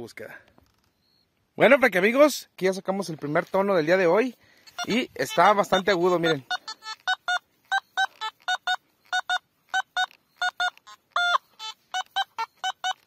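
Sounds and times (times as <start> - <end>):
metal detector beeps: 4.7 - 13.0.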